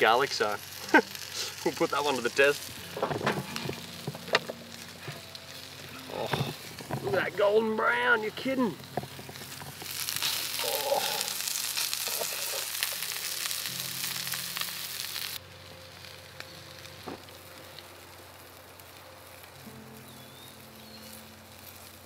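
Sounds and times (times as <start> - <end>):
food sizzling in hot oil: 0.0 - 22.0
tongs turning food in pan: 8.8 - 15.4.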